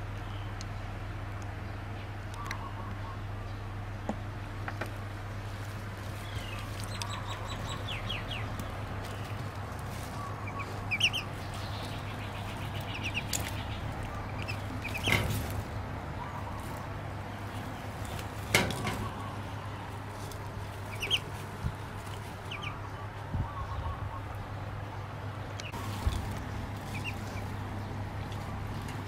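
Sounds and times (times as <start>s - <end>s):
duckling peeping: 6.0s - 29.0s.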